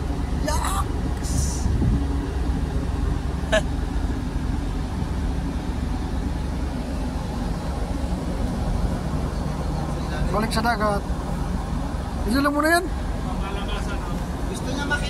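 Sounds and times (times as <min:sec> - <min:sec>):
ship machinery rumbling: 0:00.0 - 0:15.0.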